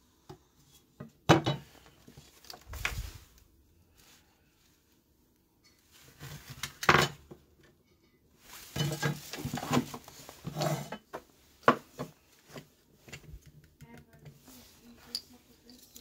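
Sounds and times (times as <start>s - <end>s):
parts clattering on workbench: 1.2s - 1.9s, 6.5s - 7.4s, 8.6s - 13.6s.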